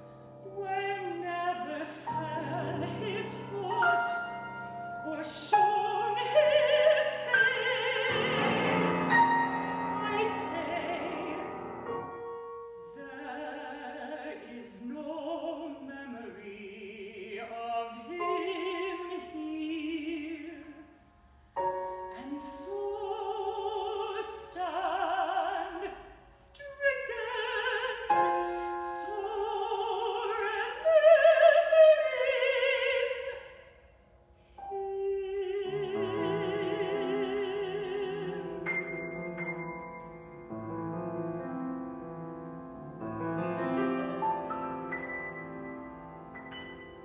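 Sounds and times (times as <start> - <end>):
woman singing with vibrato: 0.0 - 12.2, 12.8 - 21.0, 22.0 - 33.7, 34.6 - 40.0
grand piano accompaniment: 0.0 - 26.1, 26.8 - 47.0.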